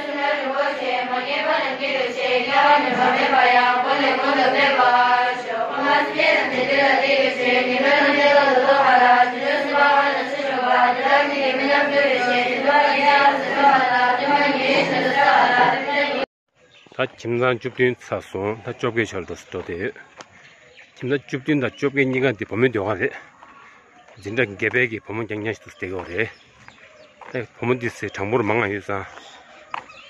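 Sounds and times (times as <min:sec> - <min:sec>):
girls chanting a prayer in unison: 0:00.0 - 0:16.3.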